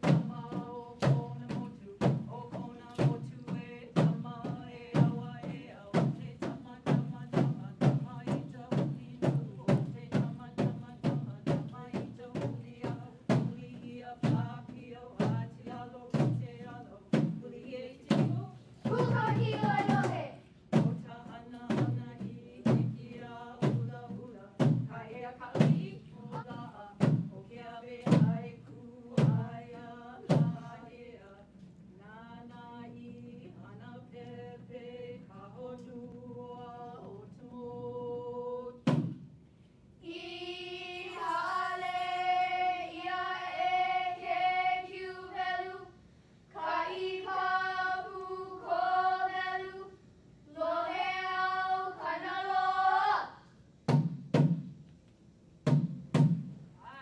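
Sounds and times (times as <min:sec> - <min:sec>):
drum strikes: 0:00.0 - 0:28.6, 0:29.2 - 0:30.7, 0:38.8 - 0:39.4, 0:53.8 - 0:54.8, 0:55.6 - 0:56.7
female voices chanting: 0:17.7 - 0:20.4.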